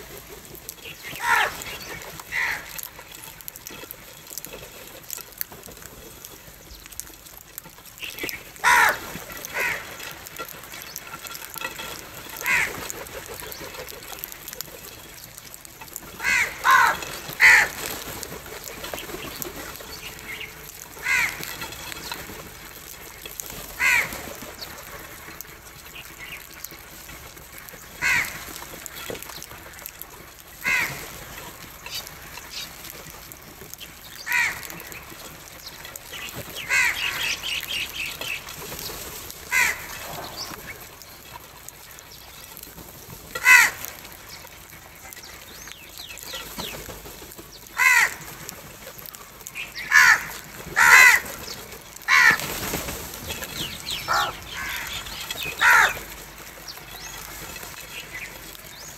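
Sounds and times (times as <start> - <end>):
crows cawing: 1.0 - 3.8, 8.2 - 14.3, 15.9 - 18.0, 20.9 - 22.1, 23.7 - 24.3, 27.9 - 28.6, 30.6 - 31.0, 34.2 - 35.2, 36.6 - 37.7, 39.5 - 40.8, 43.4 - 44.0, 47.7 - 48.4, 49.6 - 52.6, 53.9 - 56.2.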